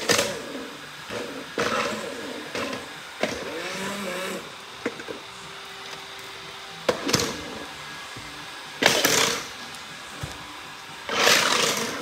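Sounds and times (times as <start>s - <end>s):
robot vacuum humming: 0.0s - 12.0s.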